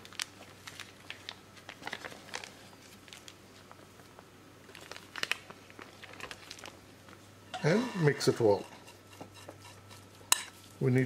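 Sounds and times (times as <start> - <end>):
plastic film crinkling: 0.0 - 7.2.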